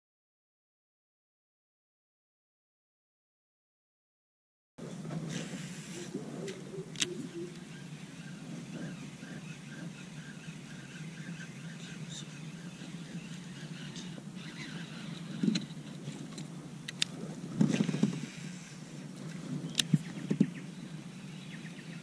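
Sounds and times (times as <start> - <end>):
steady low rumble: 4.8 - 22.0
sharp clicks: 6.5 - 7.7.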